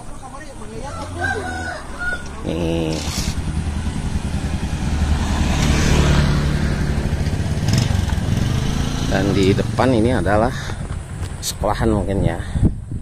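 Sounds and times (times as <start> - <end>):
small motorcycle engine running: 2.4 - 10.1.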